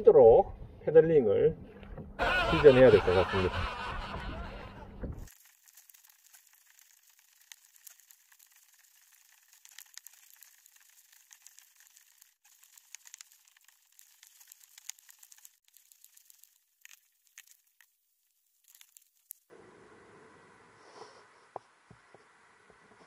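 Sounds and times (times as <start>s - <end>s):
high thin crackling: 2.6s - 19.6s.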